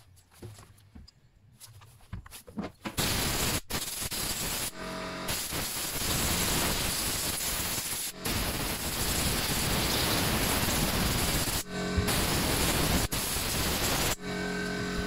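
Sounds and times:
air hissing from nozzle: 3.0s - 14.2s.

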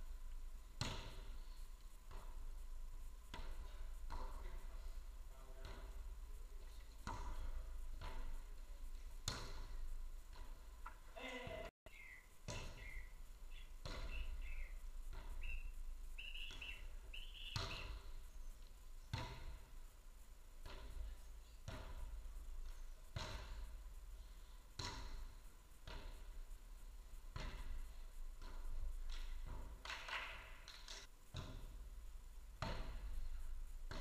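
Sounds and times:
ball being struck: 0.8s - 1.3s, 9.2s - 10.6s, 12.5s - 13.0s, 13.8s - 14.5s, 17.5s - 18.1s, 19.1s - 19.6s, 23.2s - 23.7s, 24.8s - 26.1s, 32.6s - 33.1s.

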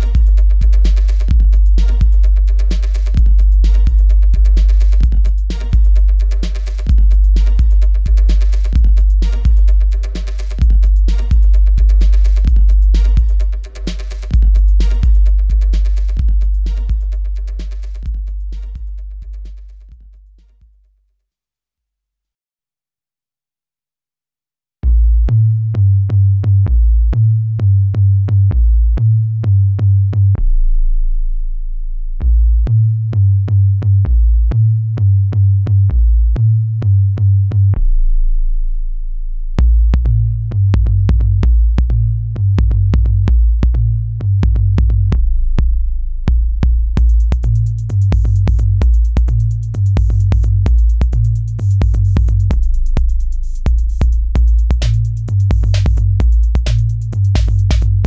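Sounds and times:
electronic bass music: 0.0s - 20.6s, 24.8s - 58.0s
fast hi-hat ticks: 0.0s - 20.6s, 47.0s - 58.0s.

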